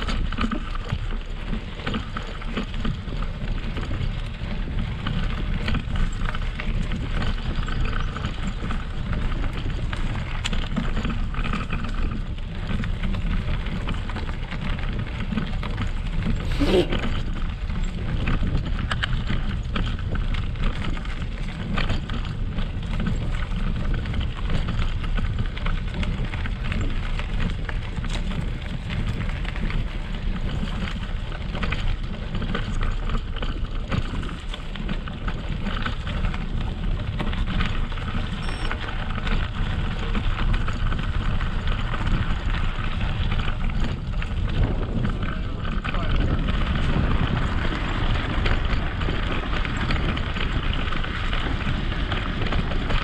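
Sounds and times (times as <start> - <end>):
low rumble: 16.2 - 17.4
bike tyres crunching on gravel: 23.9 - 53.0.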